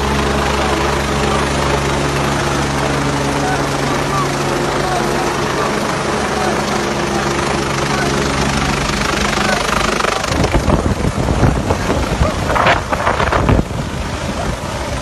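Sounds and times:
helicopter hovering: 0:00.0 - 0:15.0
wind rumble on microphone: 0:09.8 - 0:15.0.

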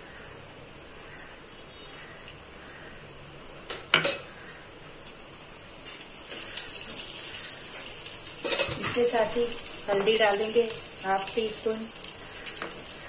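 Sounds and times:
spices sizzling in hot oil: 0:05.0 - 0:13.0.

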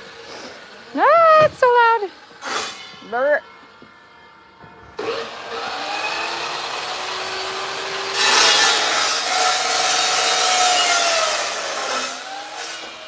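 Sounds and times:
chop saw cutting metal: 0:02.4 - 0:03.2, 0:05.0 - 0:13.0.

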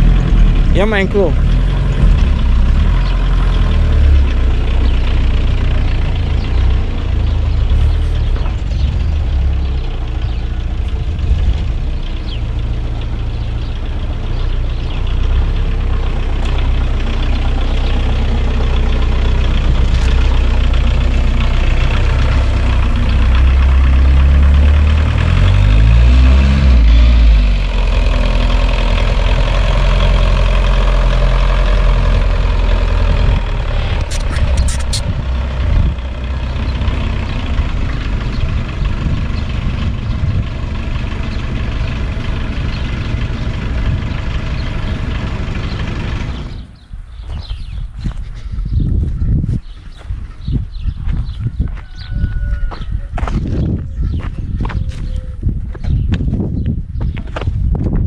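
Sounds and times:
diesel engine running: 0:00.0 - 0:58.0
sharp clicks: 0:34.0 - 0:35.1.

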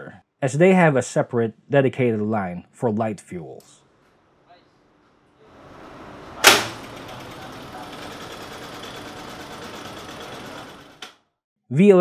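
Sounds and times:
diesel generators clattering: 0:05.7 - 0:11.1
sharp clack: 0:06.4 - 0:06.9.

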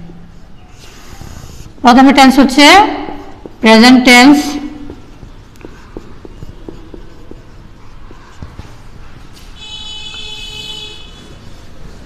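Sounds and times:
marker squeaking on whiteboard: 0:00.3 - 0:01.8, 0:02.9 - 0:12.0
marker ticking on whiteboard: 0:03.2 - 0:09.3.

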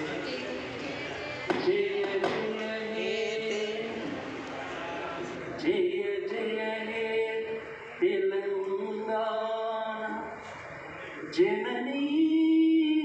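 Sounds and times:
man singing into a microphone: 0:01.5 - 0:04.2, 0:05.6 - 0:10.4, 0:11.2 - 0:13.0.

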